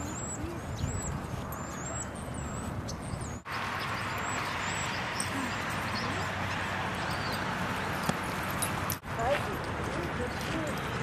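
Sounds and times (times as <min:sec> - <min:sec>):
small birds chirping: 0:00.0 - 0:08.3.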